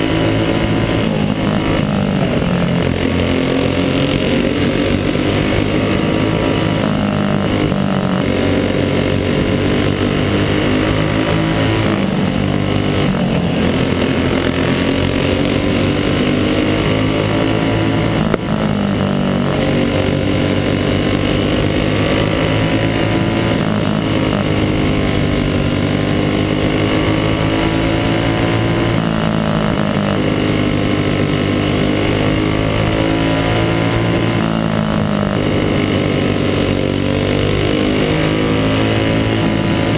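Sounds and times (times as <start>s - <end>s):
other kart engines nearby: 0.0s - 39.9s
racing kart engine: 0.0s - 39.9s.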